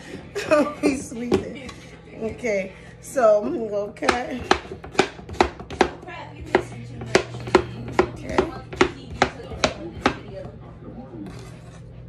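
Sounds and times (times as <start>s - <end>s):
knife chopping on wooden board: 4.0s - 10.6s.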